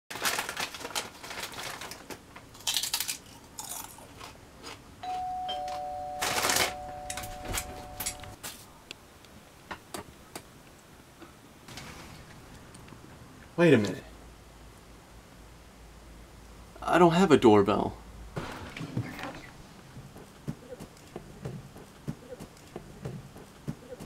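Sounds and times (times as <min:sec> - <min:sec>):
chip bag crinkling: 0:00.1 - 0:04.8, 0:06.2 - 0:06.8
ding-dong doorbell chime: 0:05.0 - 0:08.4.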